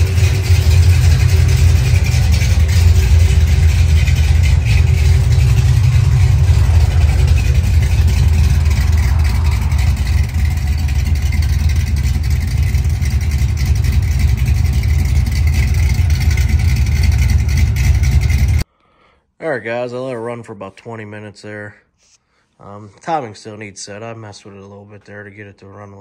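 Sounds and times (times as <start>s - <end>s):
car engine idling: 0.0s - 18.6s.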